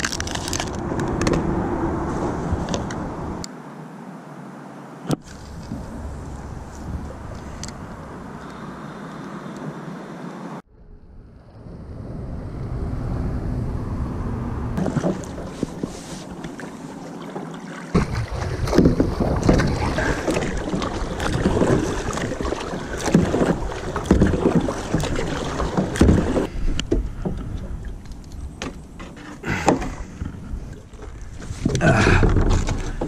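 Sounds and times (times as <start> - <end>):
wind rumbling on microphone: 0.0 - 3.5, 5.1 - 9.8, 10.6 - 17.0, 17.9 - 33.0
water wash: 14.2 - 28.9
paddle strokes splashing in water: 14.8 - 33.0.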